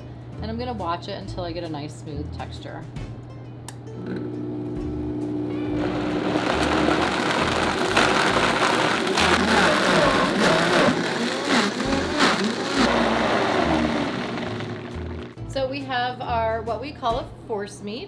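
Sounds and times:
blender churning: 5.5s - 15.4s.

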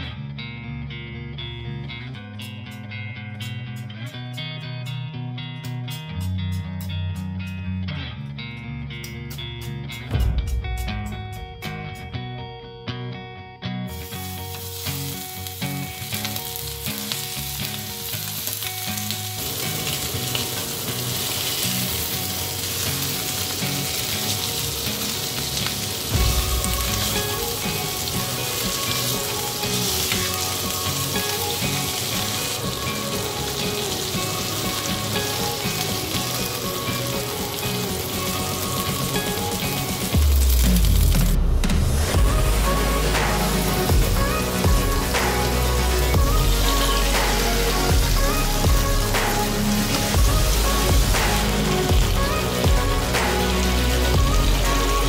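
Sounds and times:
chicken sizzling in hot oil: 13.9s - 41.4s, 42.0s - 55.0s.

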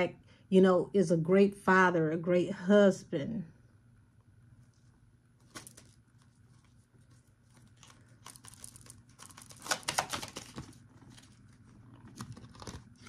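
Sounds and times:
cards being handled: 4.7s - 13.0s.

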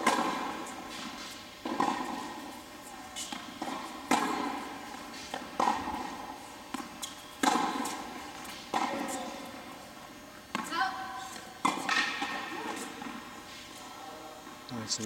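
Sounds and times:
tennis ball bounces: 0.0s - 9.9s, 10.5s - 13.3s.

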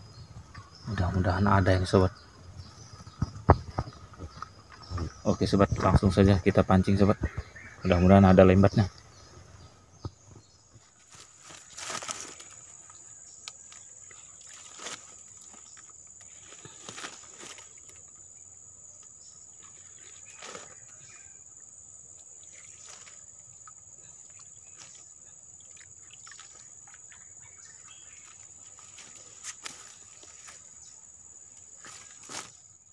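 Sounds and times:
rustling dead leaves and twigs: 10.2s - 18.4s, 19.0s - 21.4s, 22.0s - 25.3s, 26.2s - 32.9s.

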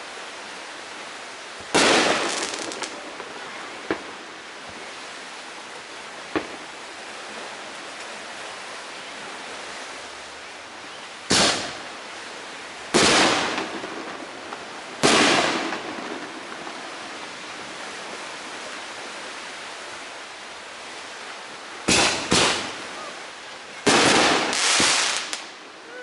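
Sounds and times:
fireworks banging: 1.7s - 4.2s, 11.3s - 11.9s, 12.9s - 16.8s, 21.8s - 22.8s, 23.8s - 25.5s.

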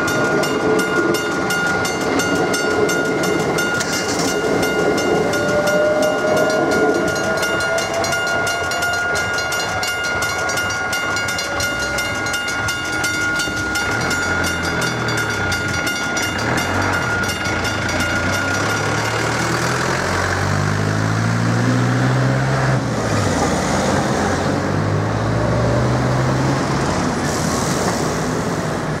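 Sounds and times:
level crossing bell ringing: 0.0s - 20.1s
car engines idling and revving: 11.6s - 29.0s.

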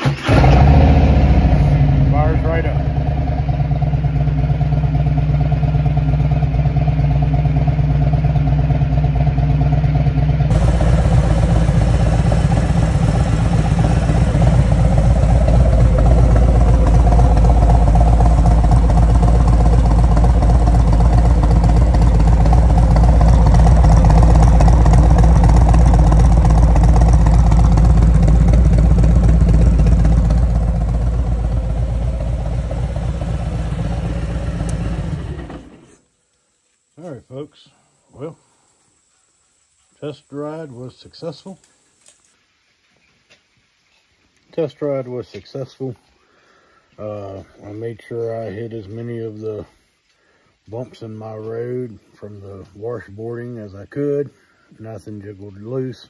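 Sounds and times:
motorcycle engine idling: 0.2s - 36.0s.

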